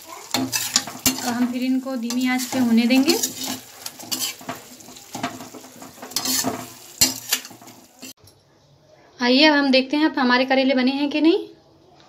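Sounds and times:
food sizzling in hot oil: 0:00.0 - 0:08.2
utensil scraping and clinking pan: 0:00.2 - 0:08.2.

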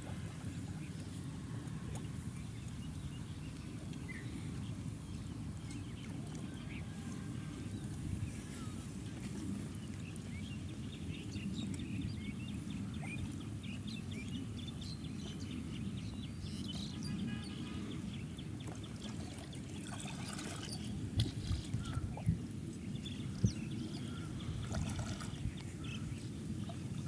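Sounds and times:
water lapping and sloshing: 0:00.0 - 0:27.0
sharp water splashes: 0:24.6 - 0:25.4.

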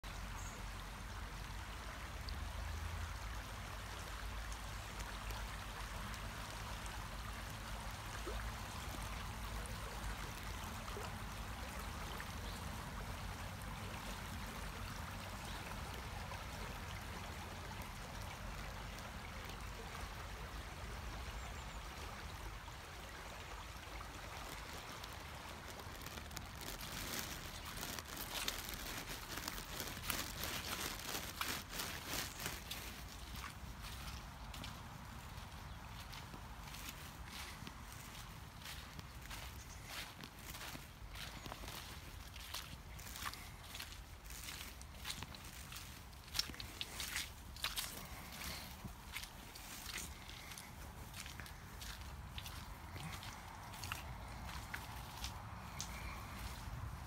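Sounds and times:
stream flowing: 0:00.0 - 0:57.0
footsteps crunching dry leaves: 0:24.5 - 0:57.0.

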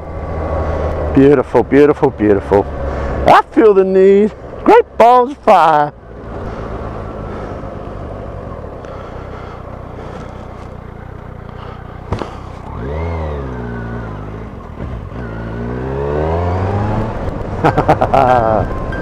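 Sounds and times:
motorcycle engine running: 0:06.0 - 0:19.0.

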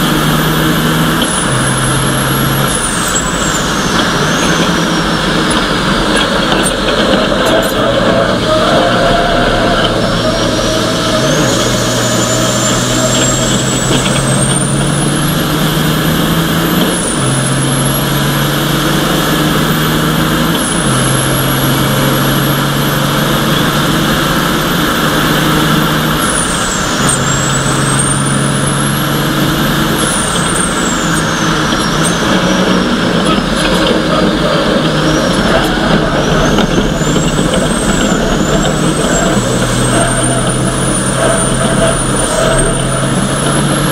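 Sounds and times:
high engine whine: 0:00.0 - 0:43.9
race truck diesel engine revving: 0:00.0 - 0:43.9.

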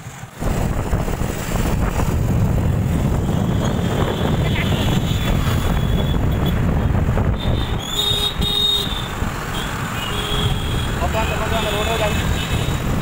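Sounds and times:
traffic engine rumble: 0:00.0 - 0:13.0
vehicle horn honking: 0:07.4 - 0:12.8.

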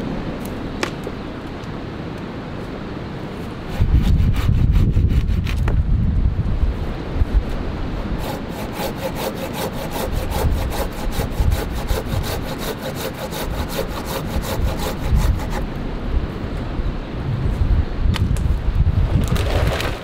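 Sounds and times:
hand saw cutting wood: 0:03.7 - 0:05.7, 0:08.2 - 0:15.6.

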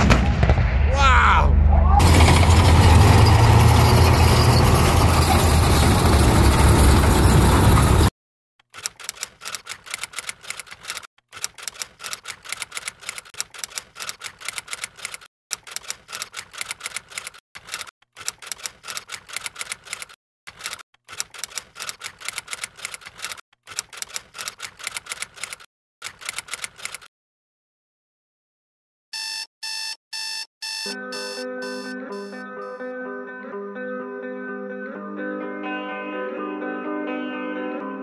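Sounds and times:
typewriter keys clacking: 0:08.7 - 0:27.1.

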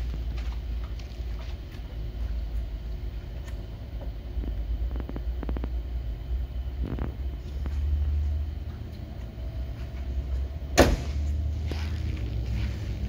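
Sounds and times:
steady low rumble: 0:00.0 - 0:13.0
car trunk lid slamming: 0:10.7 - 0:11.2.

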